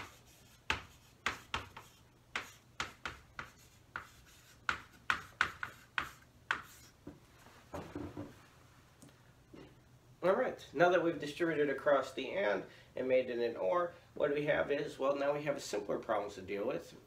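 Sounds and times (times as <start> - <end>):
chalk tapping on chalkboard: 0.0 - 6.9.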